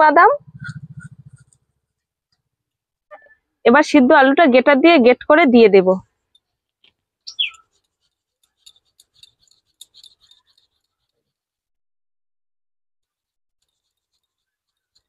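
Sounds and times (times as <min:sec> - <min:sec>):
high falling chirp: 0:07.3 - 0:07.7
potato scraping on grater: 0:13.6 - 0:15.0.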